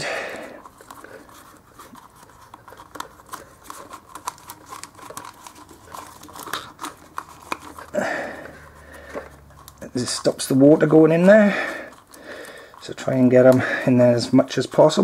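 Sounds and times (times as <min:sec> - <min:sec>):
rubber shroud rustling and rubbing: 0:00.0 - 0:15.0.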